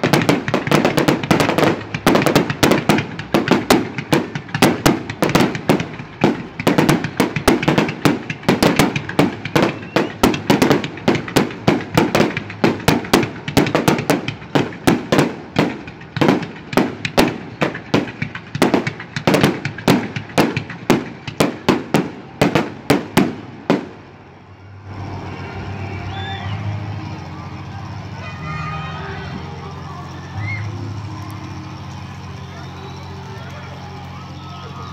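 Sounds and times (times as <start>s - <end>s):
firework shells bursting: 0.0s - 24.2s.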